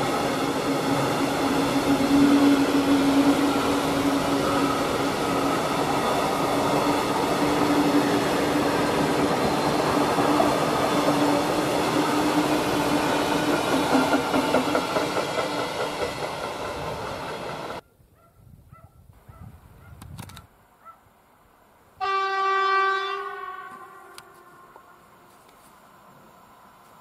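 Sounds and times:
train wheels rumbling on rails: 0.0 - 17.8.

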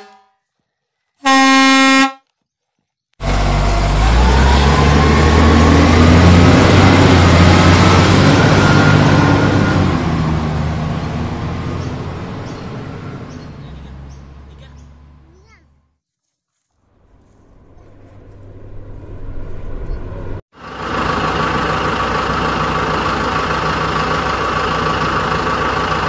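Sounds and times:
truck horn honk: 0.0 - 0.4, 1.2 - 2.3
truck engine whining: 3.2 - 15.9, 17.0 - 26.0.

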